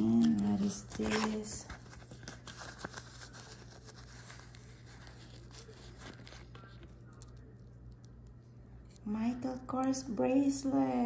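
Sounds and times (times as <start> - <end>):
packaging rustling and crinkling: 0.0 - 7.5.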